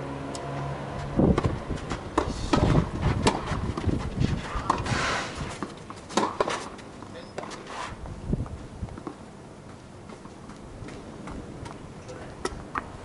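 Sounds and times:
tennis ball bouncing on racket: 0.4s - 7.6s.

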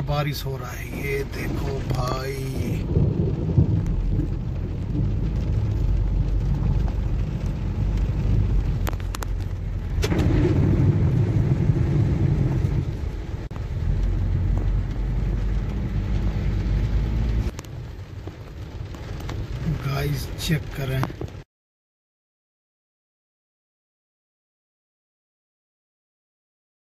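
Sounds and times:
rain on car roof: 0.0s - 21.5s
car driving through water: 0.6s - 21.0s.

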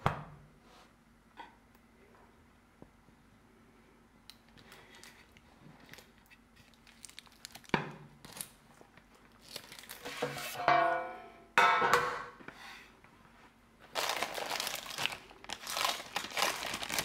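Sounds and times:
crinkling: 4.4s - 10.4s, 13.8s - 17.0s.

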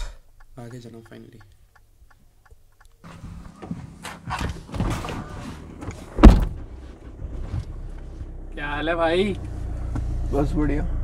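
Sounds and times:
car engine idling: 0.1s - 11.0s
car door slamming: 3.1s - 7.9s.

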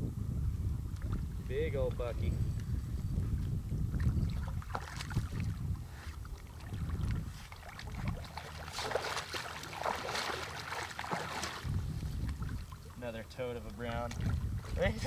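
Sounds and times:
wind rumbling on microphone: 0.0s - 15.0s
fish splashing in water: 4.0s - 5.6s, 6.2s - 12.9s.

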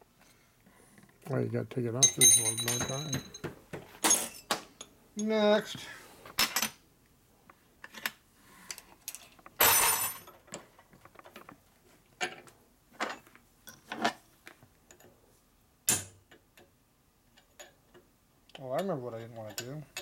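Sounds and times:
metal parts and tools clinking: 2.0s - 5.4s, 18.6s - 20.0s.

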